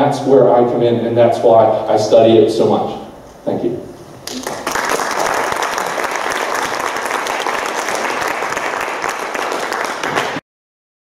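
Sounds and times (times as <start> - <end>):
audience applauding: 4.3 - 10.4.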